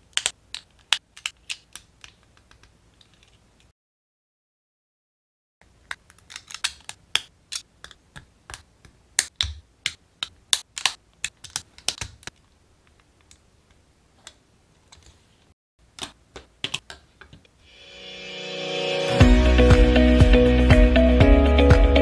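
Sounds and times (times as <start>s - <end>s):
plastic parts clicking together: 0.0s - 3.4s, 5.6s - 15.2s.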